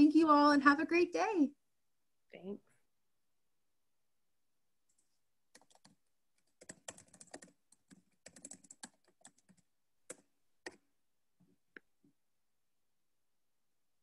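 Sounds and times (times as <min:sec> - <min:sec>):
faint keyboard typing: 0:04.9 - 0:12.0.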